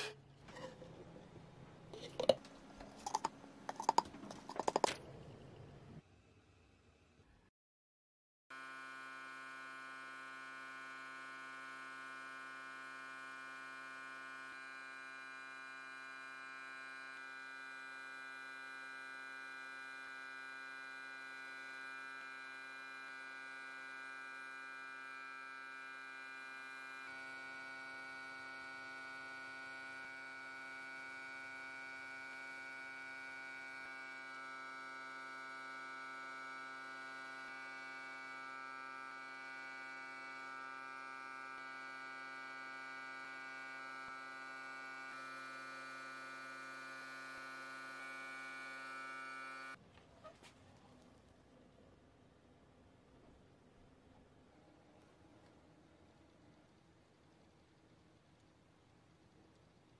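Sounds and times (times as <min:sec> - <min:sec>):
electrical equipment hum: 0:00.0 - 0:06.1.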